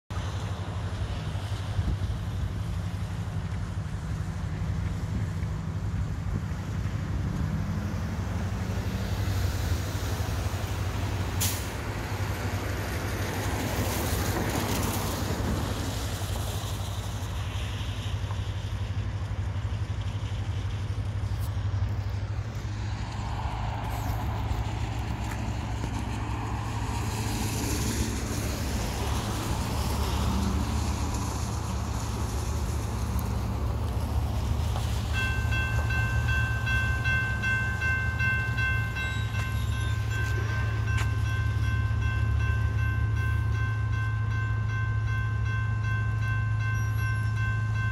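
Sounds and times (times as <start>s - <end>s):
distant rail grinding train rumble: 0.1s - 47.9s
grade crossing bell ringing: 35.1s - 47.9s.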